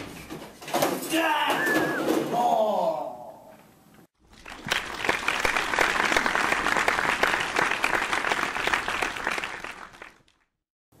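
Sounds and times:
many hands clapping: 4.2 - 10.6.

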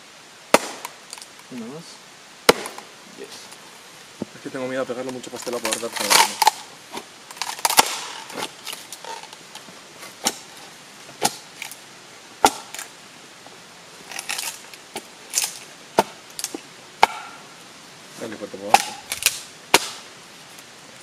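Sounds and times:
wood cracking and rustling: 0.5 - 1.7, 5.0 - 11.8, 14.0 - 17.4, 18.7 - 20.7.

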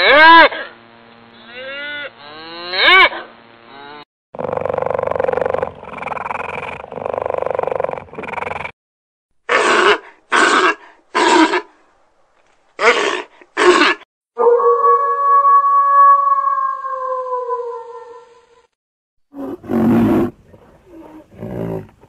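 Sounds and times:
cheetah purring: 4.4 - 8.8, 19.4 - 22.0.

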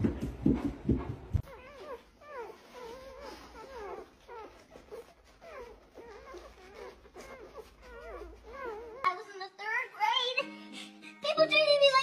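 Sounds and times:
newborn puppies whimpering: 1.4 - 9.2.

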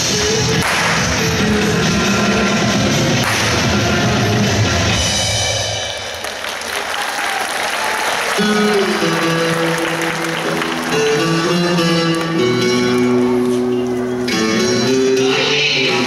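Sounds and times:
recorded show music: 0.0 - 16.0
audience applauding: 5.7 - 12.4
music with held notes: 8.4 - 16.0.

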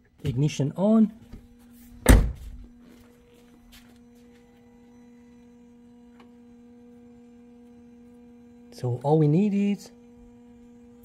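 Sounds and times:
loud thunk: 2.0 - 2.4.

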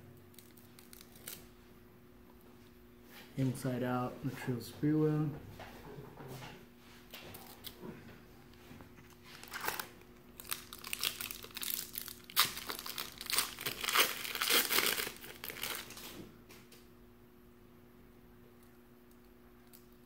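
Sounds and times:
foil wrapper tearing and crinkling: 0.3 - 1.5, 9.3 - 16.1.

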